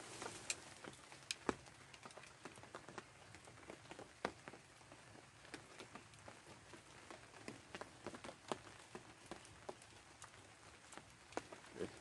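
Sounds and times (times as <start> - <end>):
raindrops tapping on raincoat: 0.0 - 12.0.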